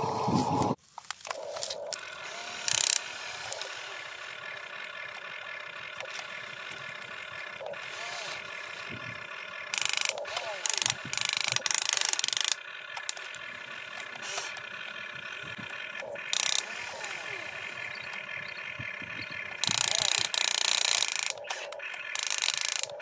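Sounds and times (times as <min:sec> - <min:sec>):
toy electric motors whining: 0:00.0 - 0:23.0
plastic gear clatter: 0:00.9 - 0:03.7, 0:09.7 - 0:14.6, 0:16.0 - 0:16.8, 0:19.6 - 0:23.0.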